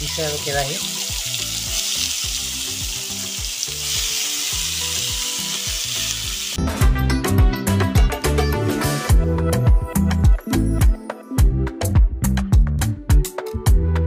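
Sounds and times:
vegetables sizzling in oil: 0:00.0 - 0:06.6.

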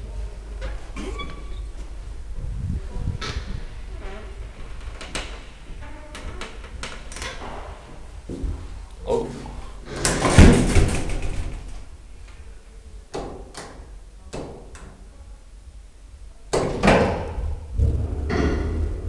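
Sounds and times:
elevator doors sliding and banging: 0:00.0 - 0:08.8, 0:09.8 - 0:12.0, 0:16.6 - 0:19.0.

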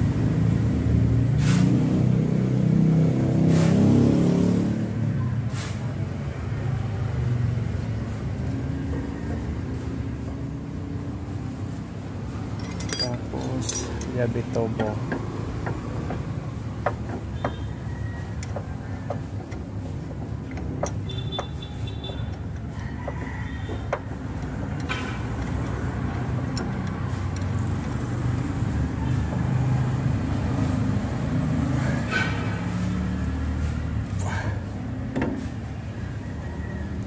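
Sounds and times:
vehicle engine rumbling: 0:04.8 - 0:37.0
metallic tool clicks: 0:12.6 - 0:14.2.

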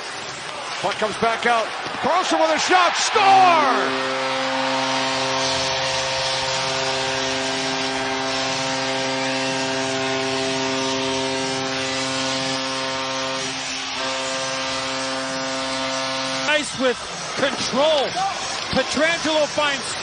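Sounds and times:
crowd cheering: 0:00.2 - 0:08.1
arena goal horn: 0:02.1 - 0:17.2.

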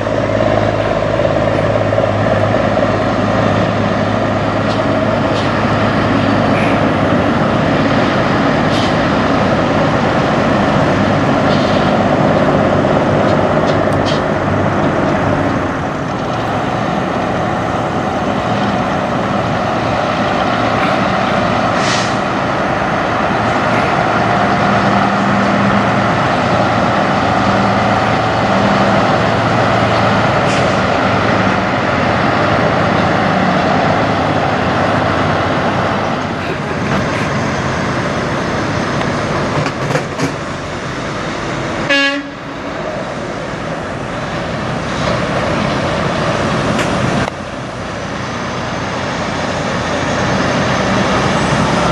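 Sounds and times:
truck diesel engines: 0:00.0 - 0:51.9
air brake hisses: 0:21.8 - 0:22.2.

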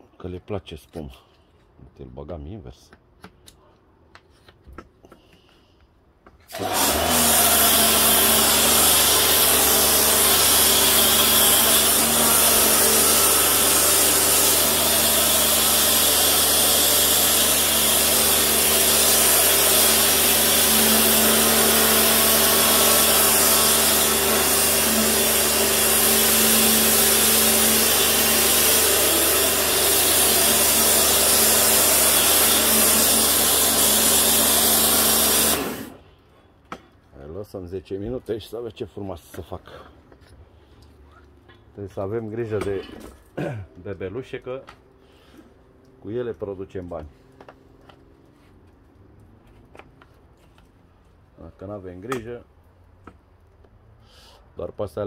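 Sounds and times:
pressure washer motor hum: 0:06.5 - 0:36.0.

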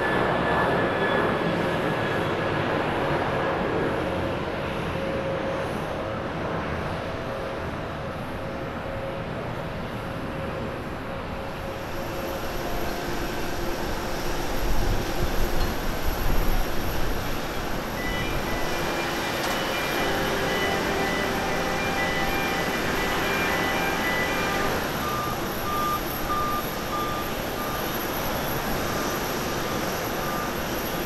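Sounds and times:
high jet engine whine: 0:00.0 - 0:31.0
jet engines roaring: 0:00.0 - 0:31.0.

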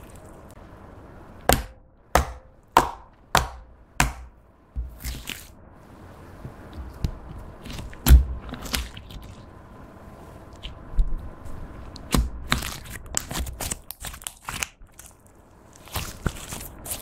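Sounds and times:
slime squishing: 0:04.2 - 0:05.6, 0:06.2 - 0:17.0.

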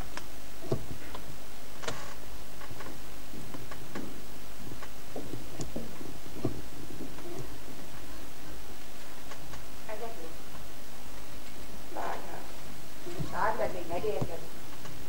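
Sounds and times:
props being handled: 0:00.0 - 0:09.8
recording hiss and hum: 0:00.0 - 0:15.0.

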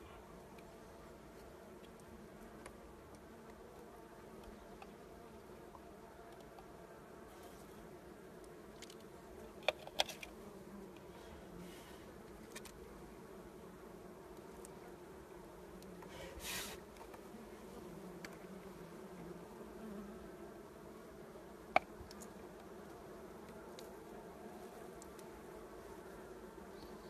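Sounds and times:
honeybees buzzing: 0:00.0 - 0:27.0
short scraping rustle: 0:16.2 - 0:16.9.

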